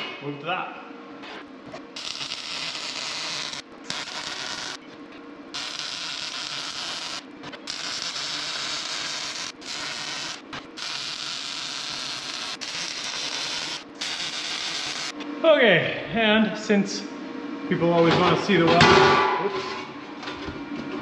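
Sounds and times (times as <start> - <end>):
welding arc hissing: 1.9 - 4.8, 5.5 - 15.2.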